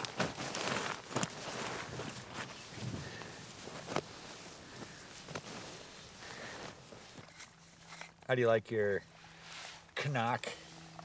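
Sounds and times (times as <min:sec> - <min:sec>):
fabric rustling: 0:00.0 - 0:07.9.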